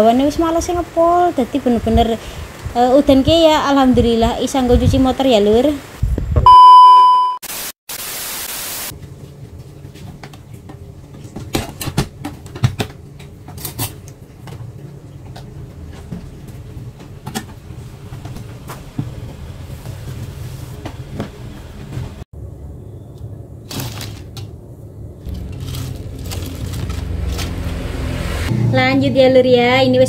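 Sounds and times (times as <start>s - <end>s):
static hiss: 7.4s - 8.9s
steady low hum: 9.0s - 29.3s.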